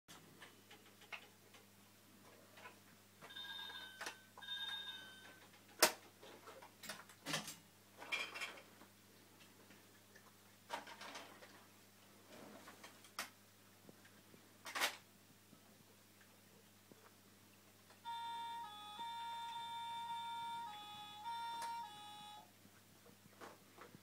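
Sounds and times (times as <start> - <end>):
aquarium pumps humming: 18.0 - 22.6
short high beeps: 18.1 - 22.5.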